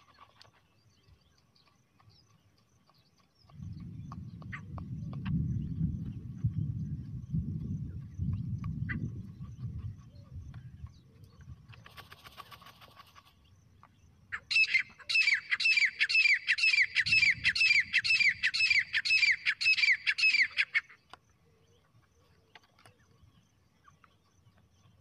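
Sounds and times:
francolin calling: 14.3 - 24.3.

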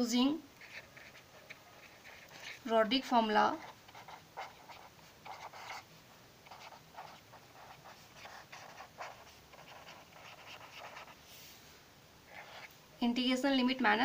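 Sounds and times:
pen scratching on paper: 0.6 - 2.7, 3.5 - 5.8, 6.4 - 11.2, 12.3 - 12.7.

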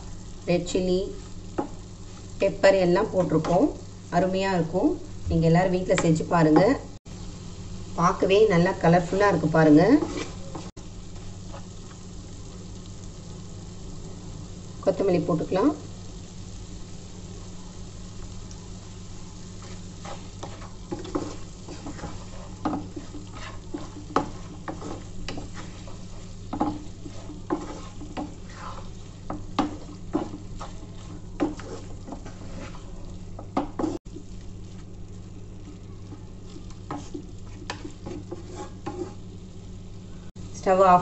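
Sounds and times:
quiet sizzle: 0.0 - 41.0
spatula scraping frying pan: 9.1 - 12.0, 19.2 - 34.9, 35.7 - 39.5.

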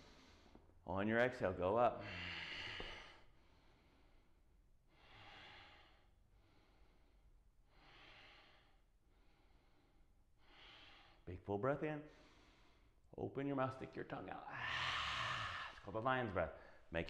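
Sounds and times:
man breathing slowly: 0.0 - 0.8, 2.0 - 11.3, 12.1 - 13.1, 14.5 - 15.9.

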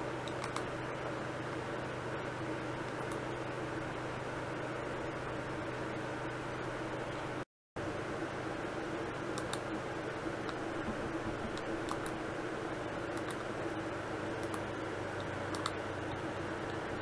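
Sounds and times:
steady hum: 0.0 - 17.0
computer mouse clicks: 0.2 - 0.7, 3.0 - 3.2, 9.4 - 9.7, 10.4 - 12.2, 13.1 - 13.4, 14.4 - 15.8.

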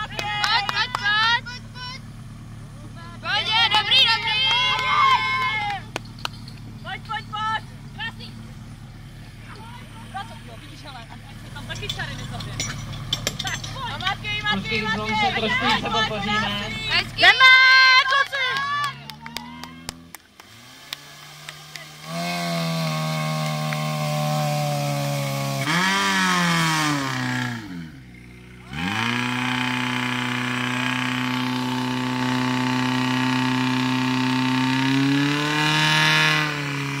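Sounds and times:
pump engine revving: 18.6 - 37.0.

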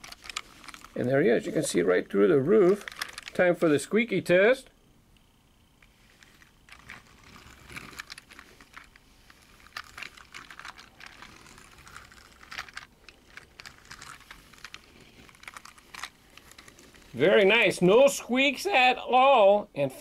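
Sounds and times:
toy wheels clicking and rattling: 0.0 - 1.8, 2.5 - 3.4, 5.8 - 17.2.

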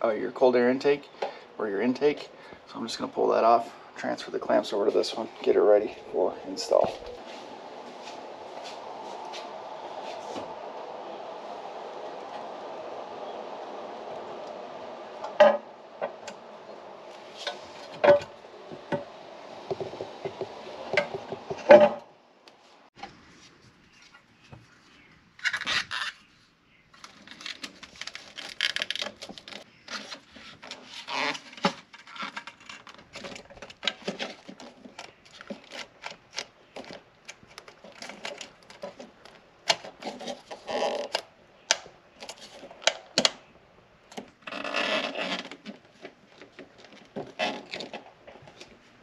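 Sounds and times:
scraping and rubbing: 13.8 - 21.9.

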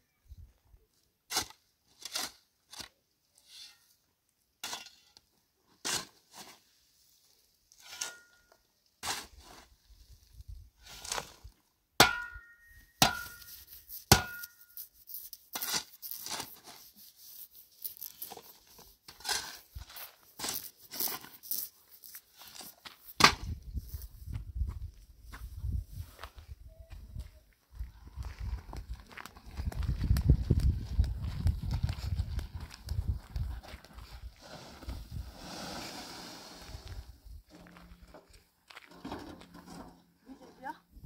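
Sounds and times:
crackling rustle: 13.4 - 23.2.

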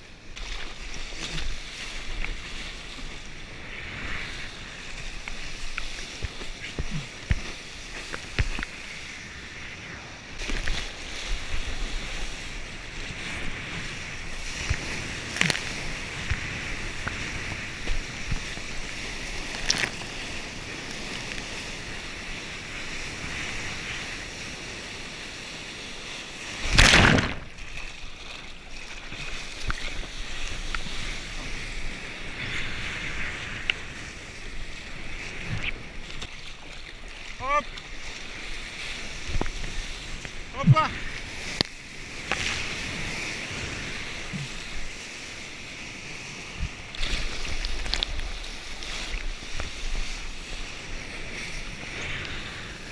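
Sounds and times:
surf hissing and splashing: 0.0 - 52.9.

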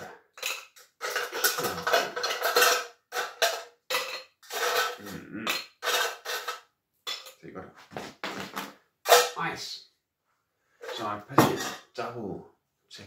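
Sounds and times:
ice cubes rattling in metal shaker: 0.4 - 3.5.

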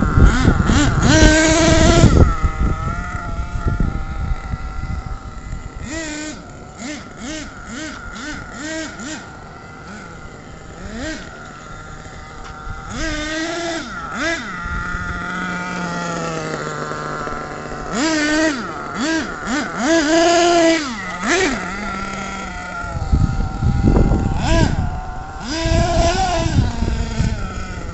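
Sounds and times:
rc truck motor revving: 0.0 - 27.9.

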